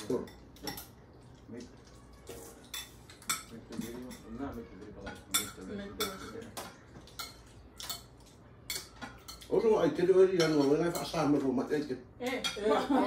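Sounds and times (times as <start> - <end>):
cutlery clinking on plates: 0.0 - 1.0, 2.5 - 9.7, 10.3 - 11.6.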